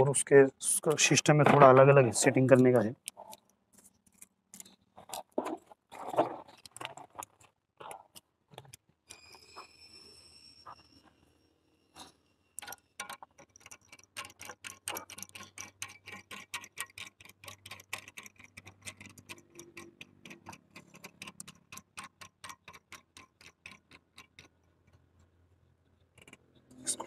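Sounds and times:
plastic nut clicking: 12.6 - 25.0.

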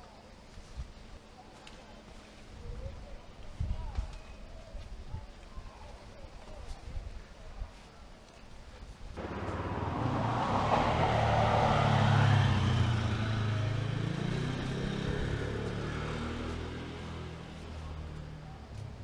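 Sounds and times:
motor vehicle passing by: 9.2 - 18.6.

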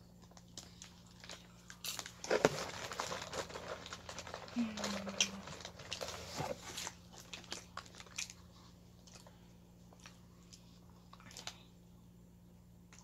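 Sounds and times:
plastic tub and wrapper crinkling: 0.2 - 8.4.

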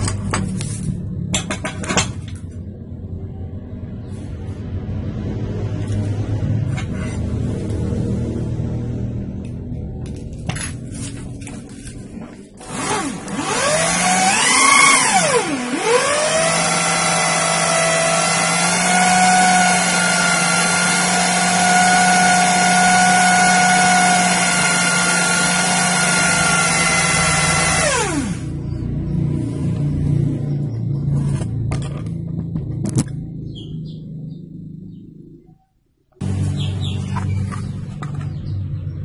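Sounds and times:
electric drill motor whining: 12.6 - 28.6.

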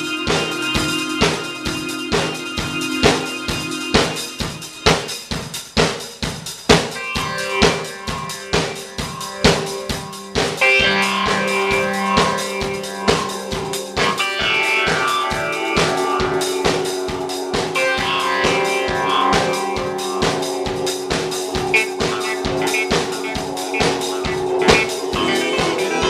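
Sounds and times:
guitar tones: 0.0 - 5.2, 7.0 - 26.0
drum kit beat: 0.0 - 26.0
sustained keyboard tones: 7.7 - 26.0.

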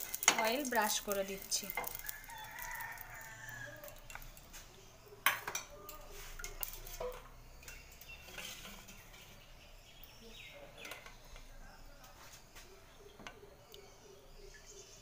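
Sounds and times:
utensil scraping frying pan: 0.0 - 3.2, 5.5 - 9.6
utensil clinking on pan: 0.0 - 4.5.

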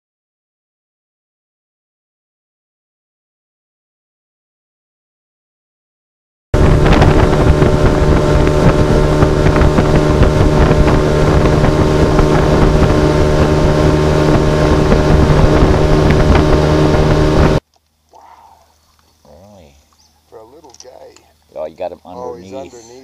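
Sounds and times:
outboard motor running: 6.6 - 17.6
wind buffeting microphone: 6.6 - 17.6.

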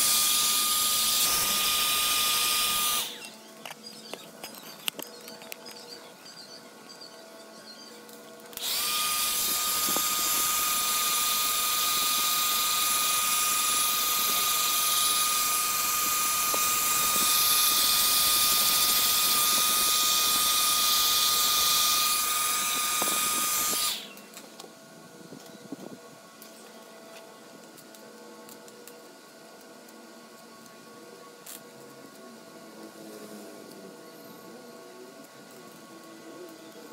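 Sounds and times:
hair dryer motor whine: 0.0 - 3.8, 8.4 - 26.0.

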